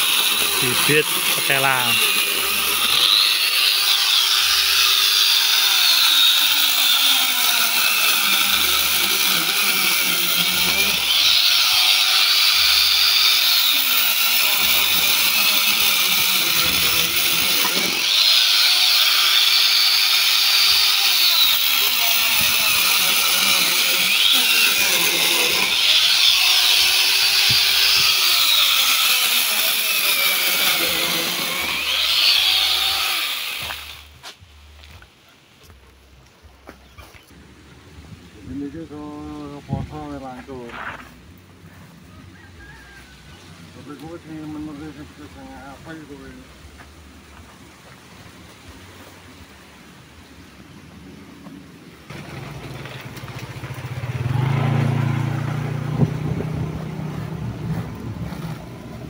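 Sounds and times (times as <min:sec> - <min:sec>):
electric chainsaw cutting stems: 0:00.0 - 0:34.3, 0:52.1 - 0:59.0.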